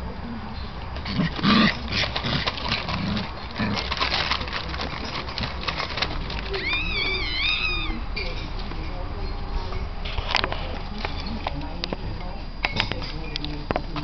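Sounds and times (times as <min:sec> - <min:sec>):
puppies scuffling: 0:00.6 - 0:14.0
claws clicking on paving: 0:00.9 - 0:07.8
puppy whining: 0:05.0 - 0:08.5.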